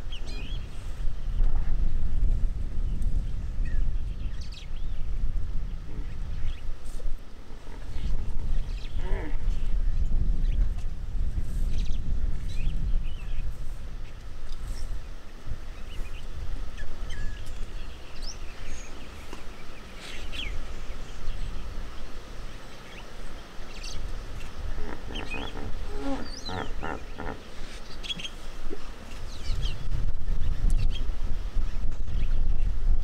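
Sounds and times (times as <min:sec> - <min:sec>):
wind buffeting microphone: 0:00.0 - 0:33.0
birds chirping: 0:07.3 - 0:10.6, 0:11.7 - 0:31.1
pitched animal calls: 0:24.6 - 0:28.3.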